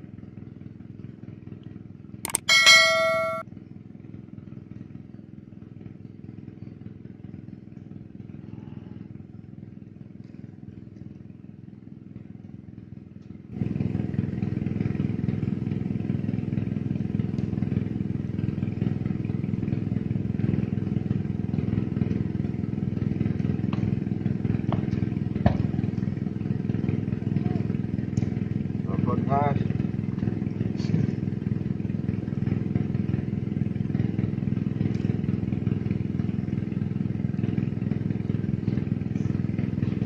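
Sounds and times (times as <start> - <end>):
engine droning steadily: 0.0 - 40.0.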